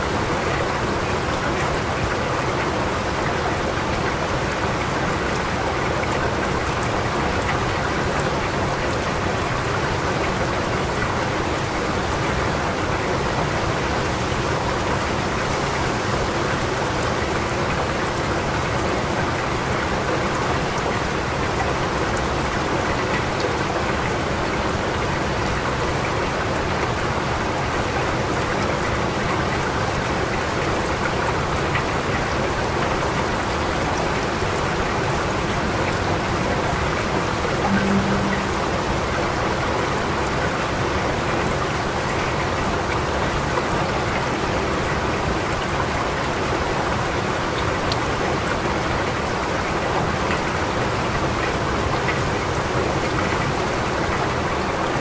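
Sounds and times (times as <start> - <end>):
steady rain falling: 0.0 - 55.0
low hum: 37.6 - 39.4.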